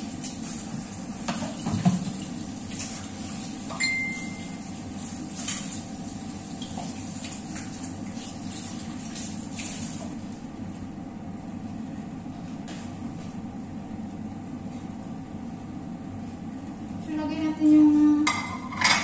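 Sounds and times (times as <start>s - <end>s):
steady low hum: 2.1s - 19.0s
ringing glass clink: 3.8s - 4.5s
pots and dishes clattering: 18.2s - 19.0s.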